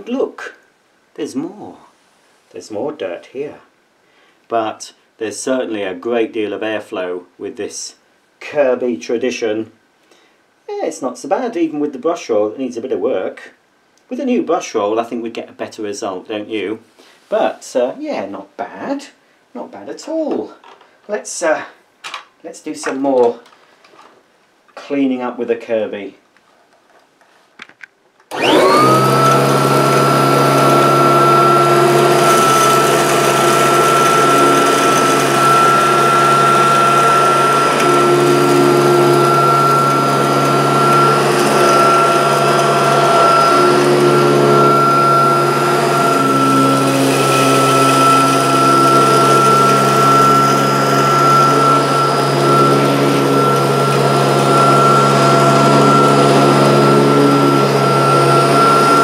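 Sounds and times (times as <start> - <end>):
vacuum cleaner motor whining: 28.3 - 59.0.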